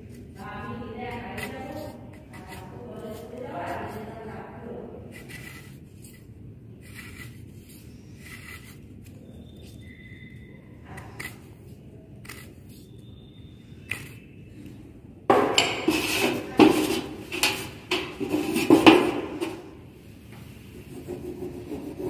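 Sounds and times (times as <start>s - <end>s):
pencil scratching on wood: 5.1s - 6.2s, 6.8s - 8.8s, 20.8s - 22.0s.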